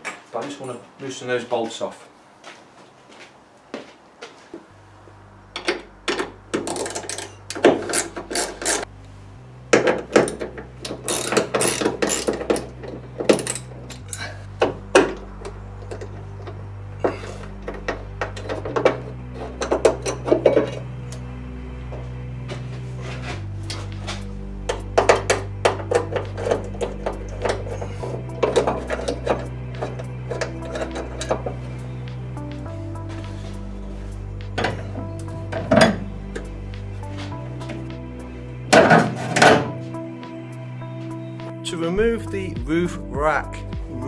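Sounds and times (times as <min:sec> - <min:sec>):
background music with bass: 0:05.0 - 0:44.0
hand tool clicking on bolts: 0:05.6 - 0:08.9, 0:09.8 - 0:16.6.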